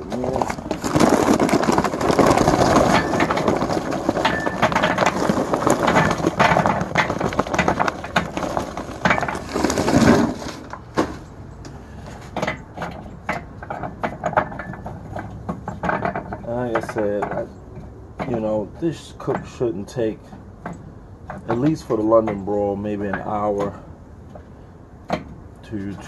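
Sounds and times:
charcoal pouring into grill: 0.1 - 11.3.

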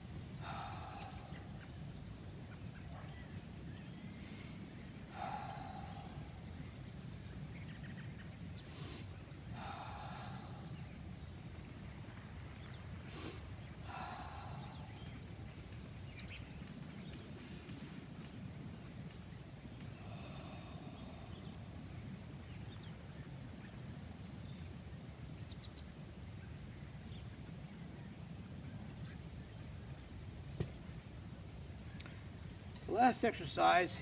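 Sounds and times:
faint bird chirps: 0.4 - 11.4.

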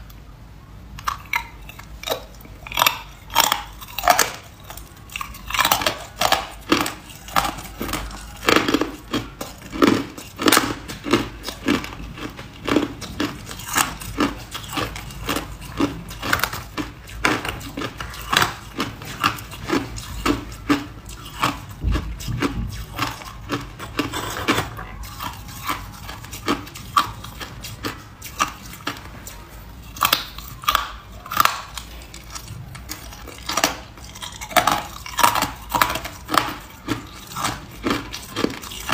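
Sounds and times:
person crunching ice: 2.7 - 29.0, 29.9 - 38.9.

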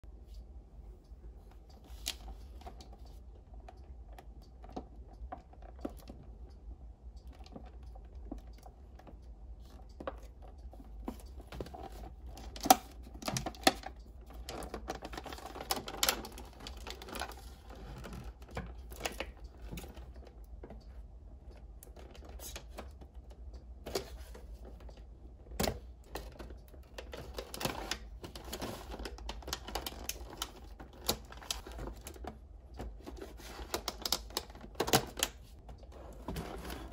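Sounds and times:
crinkling plastic wrap: 26.1 - 35.6.

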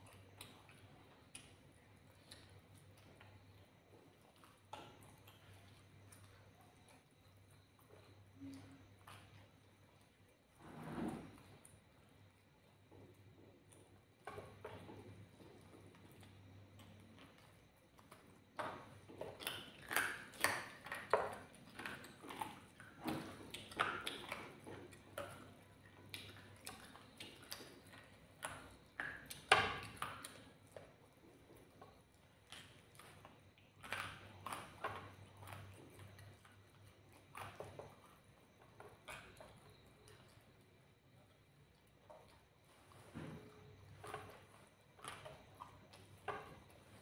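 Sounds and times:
wet chewing and mouth smacks: 11.6 - 47.0.

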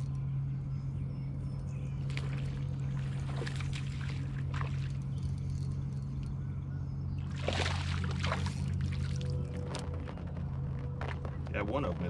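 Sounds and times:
boat motor humming: 0.0 - 12.0
water splashes: 2.1 - 5.0, 7.3 - 9.6.

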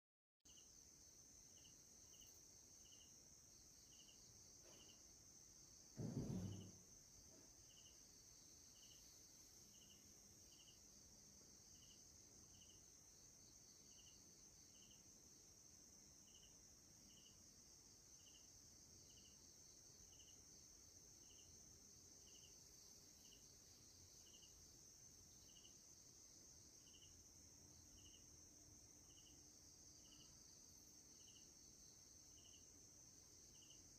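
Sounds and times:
faint insects chirping: 0.5 - 33.9
low thump: 5.9 - 7.6.

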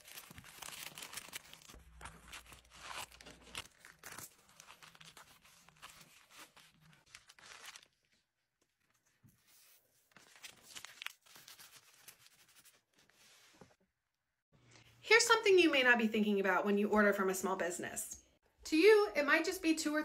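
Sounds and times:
plastic mailer and paper rustling: 0.0 - 8.3.

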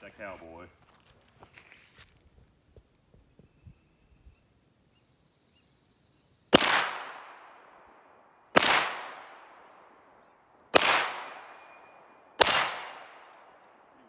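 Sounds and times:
pistol shots: 6.5 - 10.1, 10.7 - 13.9.

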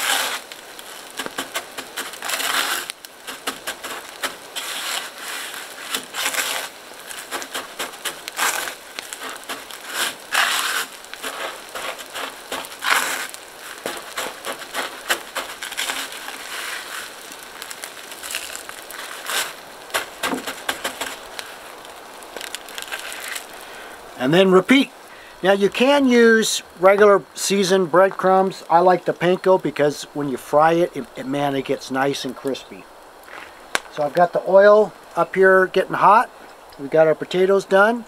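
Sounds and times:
breadcrumbs crunching: 0.0 - 23.8
light crackling ticks: 0.4 - 4.7, 5.5 - 24.0, 32.2 - 34.4, 36.3 - 37.4.

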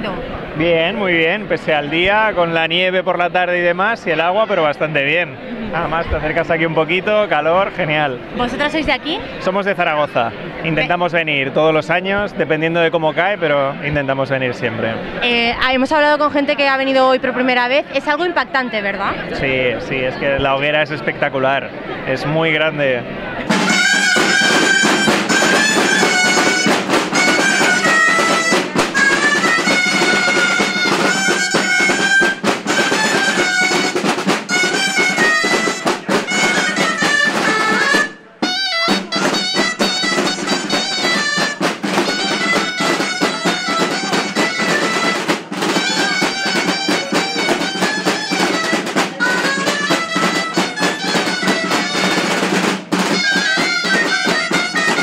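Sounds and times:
shawm playing folk melody: 23.3 - 55.0
snare drums beating: 23.5 - 55.0.

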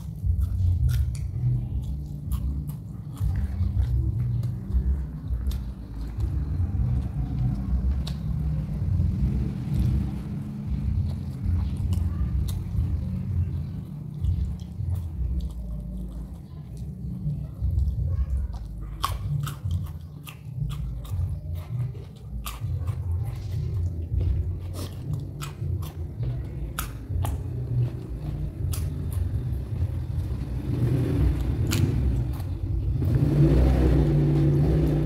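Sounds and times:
chewing raw vegetables crunching: 0.0 - 35.0
mouth clicks: 10.8 - 30.1.

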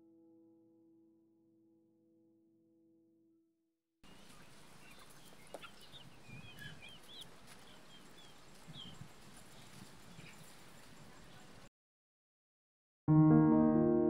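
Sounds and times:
chickens clucking softly: 4.1 - 9.1
chicks chirping and peeping: 4.1 - 11.7.

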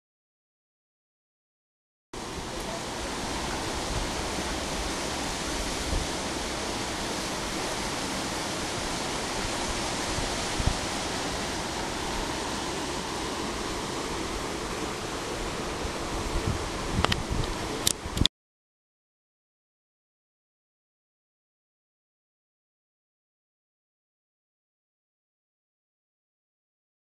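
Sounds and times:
steady rushing noise: 2.2 - 18.3.

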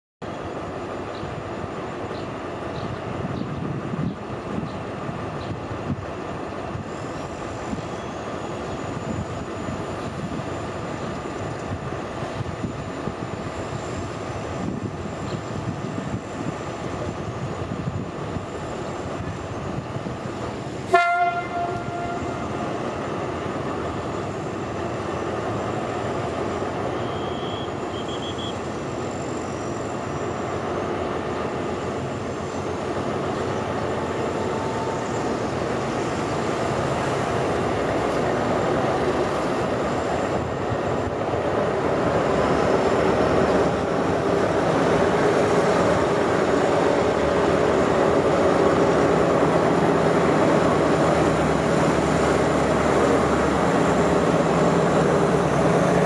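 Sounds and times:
distant diesel train running: 0.2 - 56.0
train horn blast: 20.9 - 22.6.

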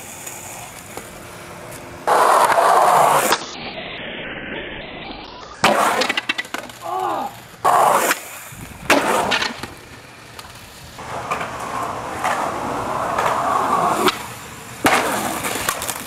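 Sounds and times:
skateboard wheels rolling on concrete: 0.0 - 16.0
skateboard clacking on ground: 5.6 - 16.0.

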